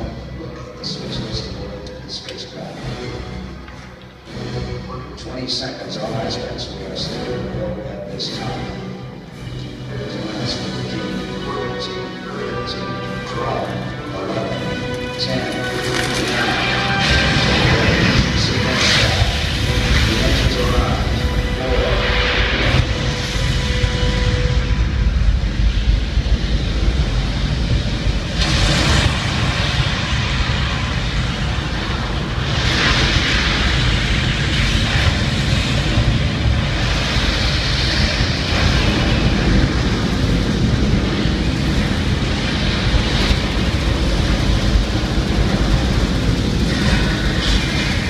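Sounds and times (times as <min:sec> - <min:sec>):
rocket launch roar: 0:12.4 - 0:48.0.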